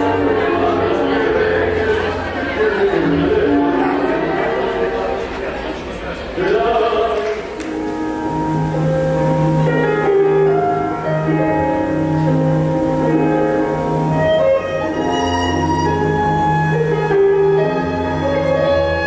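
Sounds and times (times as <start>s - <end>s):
tango music with piano and strings: 0.0s - 19.0s.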